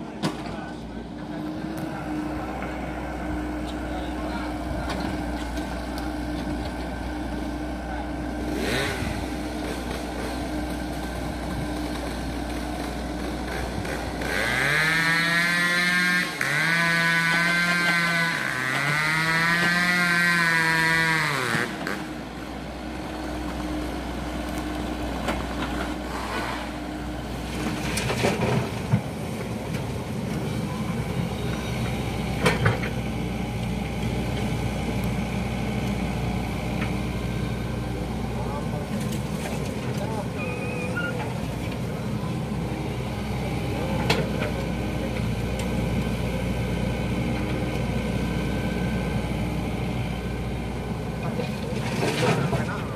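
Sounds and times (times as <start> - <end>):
diesel engines running: 0.0 - 52.9
engine pitched drone: 0.7 - 52.9.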